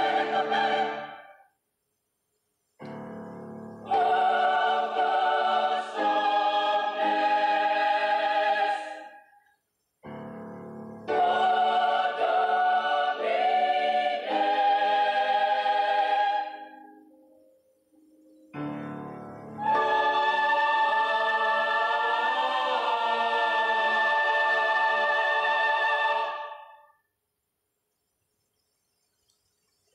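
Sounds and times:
choir singing held chords: 0.0s - 1.5s, 2.9s - 9.4s, 10.0s - 17.2s, 18.6s - 27.0s.

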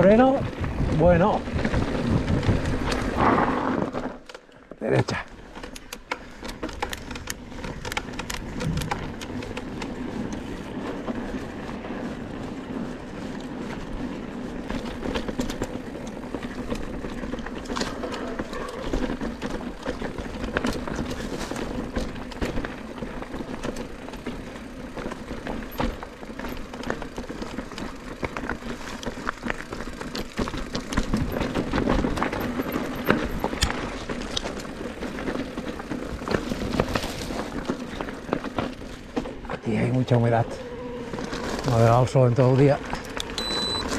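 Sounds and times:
bike rattling on rocks: 0.0s - 43.9s
tyres crunching over stones: 0.0s - 43.9s
steady rushing noise: 7.0s - 18.0s.

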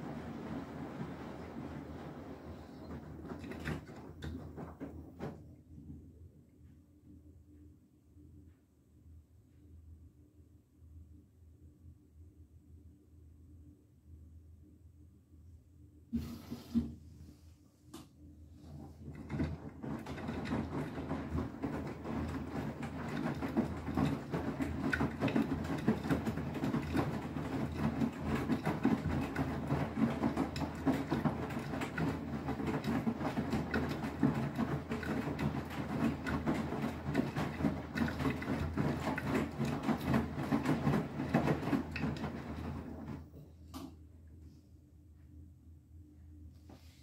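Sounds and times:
washing machine drum turning: 0.0s - 5.5s, 18.6s - 43.3s.

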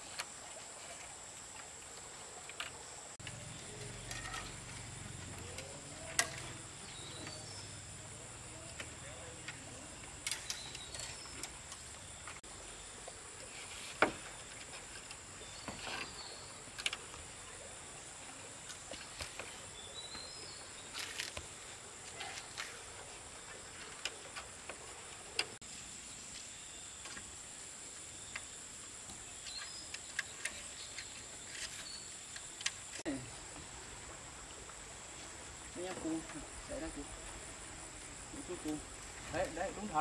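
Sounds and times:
insects droning: 0.0s - 40.0s
bird chirps: 8.5s - 12.4s.

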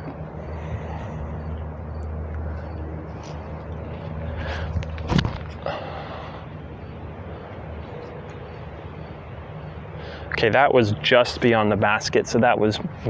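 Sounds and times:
wind rumbling on microphone: 0.0s - 5.7s.

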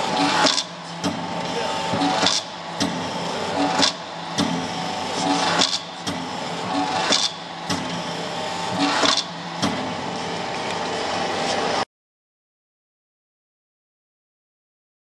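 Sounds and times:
hydraulic power unit humming: 0.0s - 11.8s.

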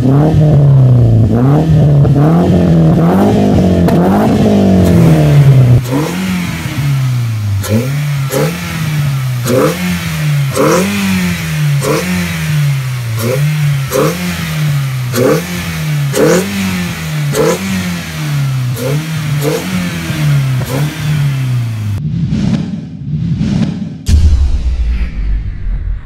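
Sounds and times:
car engine revving in blips: 0.0s - 22.0s.

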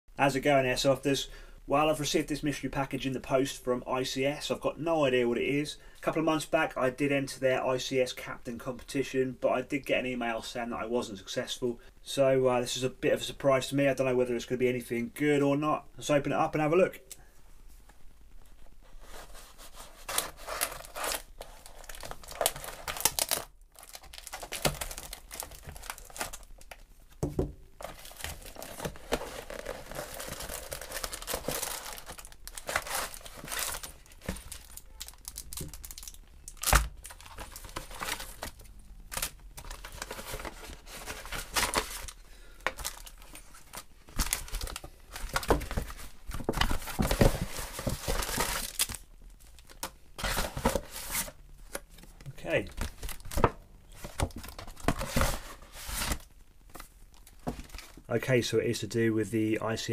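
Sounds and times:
plastic and paper crinkling: 18.4s - 58.1s
envelope tearing: 20.0s - 26.5s, 27.8s - 38.5s.

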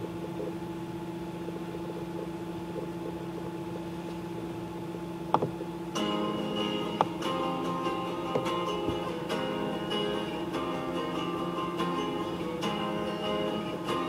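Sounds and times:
electrical hum with hiss: 0.0s - 14.0s
acoustic guitar music: 5.9s - 14.0s.

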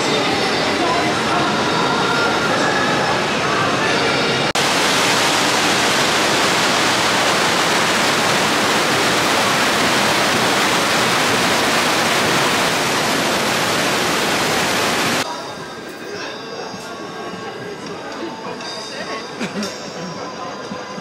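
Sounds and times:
loud rushing noise: 4.4s - 15.2s.

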